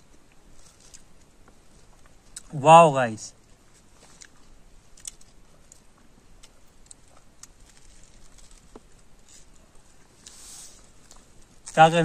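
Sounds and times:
sandwich being bitten and chewed: 3.5s - 11.9s.

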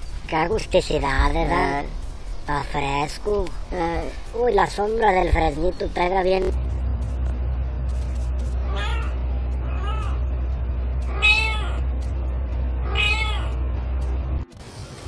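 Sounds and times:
steady low hum: 0.0s - 14.8s
cat meowing: 8.6s - 10.2s, 11.1s - 11.8s, 12.8s - 13.6s.

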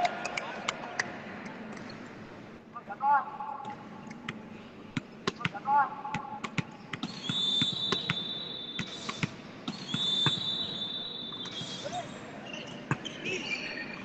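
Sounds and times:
volleyball contacts: 3.7s - 12.0s.

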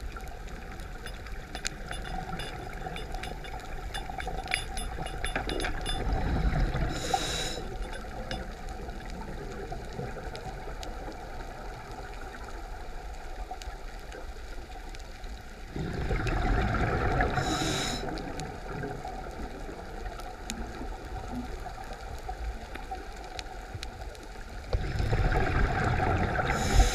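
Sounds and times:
faint clicks: 0.1s - 10.9s
regulator hiss: 1.1s - 8.3s, 17.4s - 18.2s, 26.5s - 26.9s
exhaled bubbles underwater: 15.7s - 23.1s, 24.7s - 26.9s.

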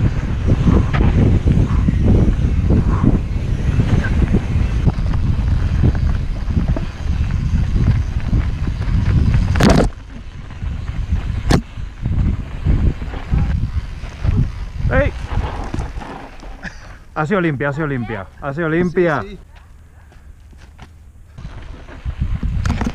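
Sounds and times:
wind on microphone: 0.0s - 16.7s, 21.3s - 22.9s
bike rattling: 0.0s - 22.9s
bike tyres rumbling on gravel: 0.0s - 22.9s.

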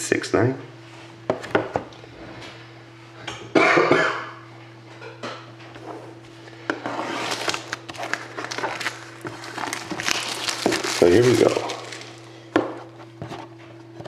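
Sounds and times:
steady low hum: 0.0s - 14.0s
rustling scrape of shrink-wrap: 6.8s - 12.4s
small clicks and crinkles: 7.6s - 12.3s.

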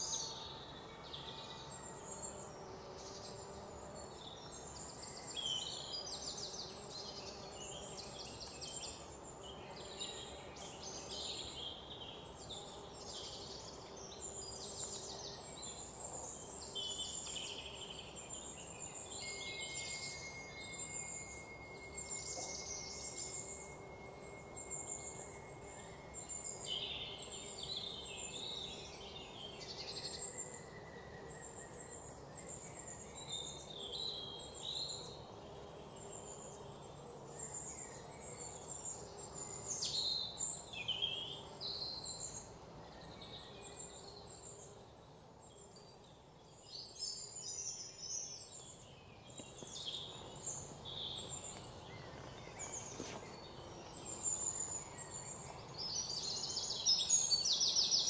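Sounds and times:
background hiss: 0.0s - 58.0s
bird trill: 19.2s - 26.6s.

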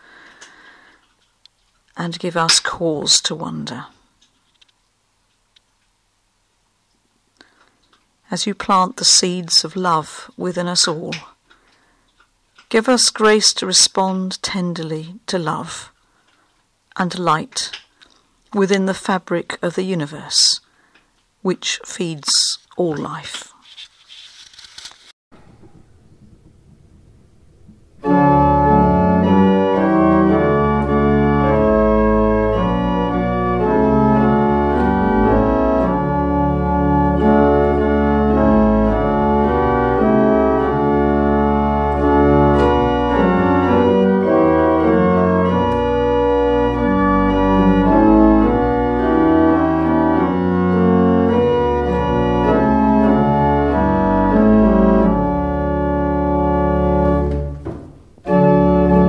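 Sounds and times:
organ playing a hymn: 25.4s - 59.0s.

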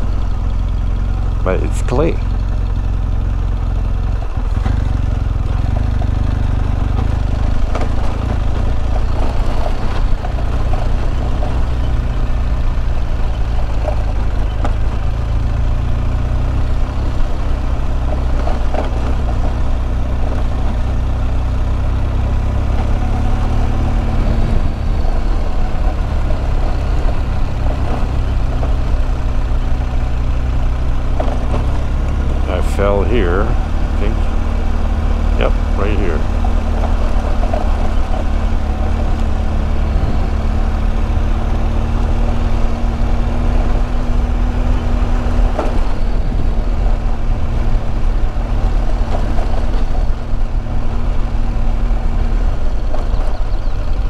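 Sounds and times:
motorcycle engine rumbling: 0.0s - 54.0s
knocks and clatters: 31.0s - 32.9s.

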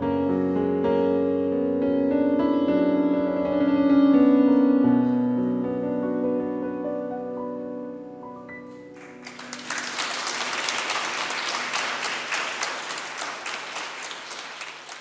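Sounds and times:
audience applauding: 8.9s - 15.0s.

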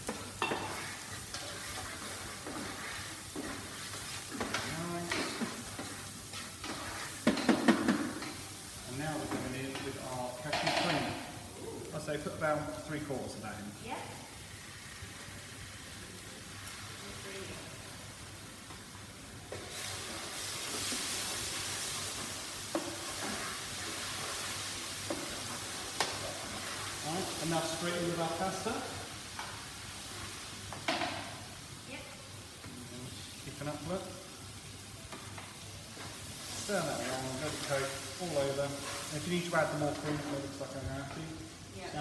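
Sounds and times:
wooden spoon stirring: 0.0s - 7.6s, 36.0s - 41.3s
vegetables sizzling in frying pan: 0.0s - 42.0s
wooden spatula scraping pan: 0.1s - 8.3s, 22.2s - 28.2s, 36.0s - 41.2s.

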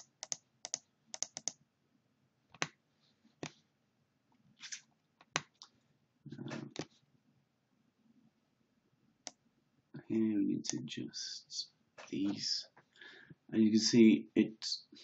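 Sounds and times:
mouse and keyboard clicks: 0.0s - 1.6s.

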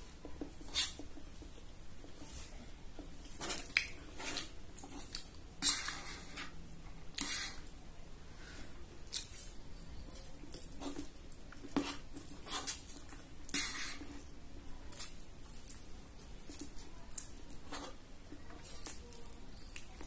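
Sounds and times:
chewing: 16.4s - 20.0s.

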